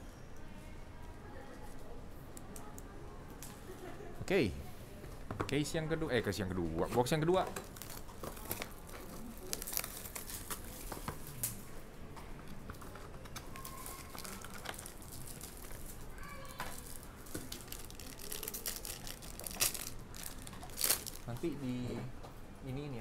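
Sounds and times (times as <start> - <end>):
plastic and foil crinkling and tearing: 7.1 - 11.7, 12.7 - 21.5.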